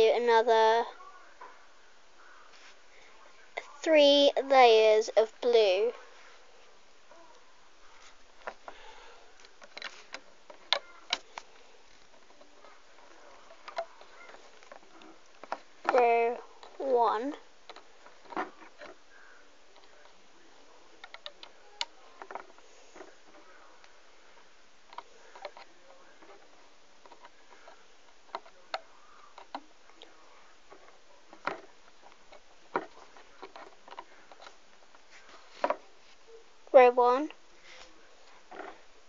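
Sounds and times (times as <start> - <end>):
faint steady hiss: 0.0 - 39.0
rubber bands clicking on pegs: 24.9 - 30.1, 30.7 - 35.0.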